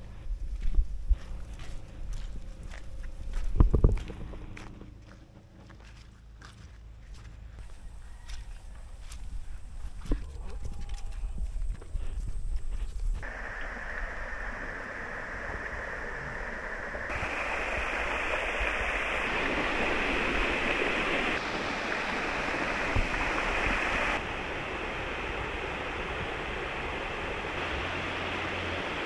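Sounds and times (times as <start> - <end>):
water rushing over a weir: 13.2 - 29.0.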